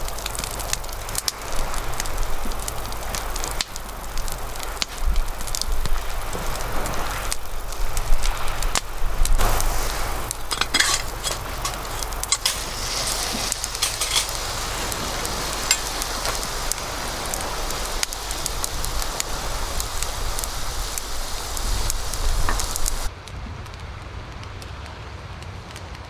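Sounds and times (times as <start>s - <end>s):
food sizzling in a skillet: 0.0s - 23.1s
wood fire crackling: 0.0s - 26.0s
spatula scraping a pan: 10.4s - 14.4s.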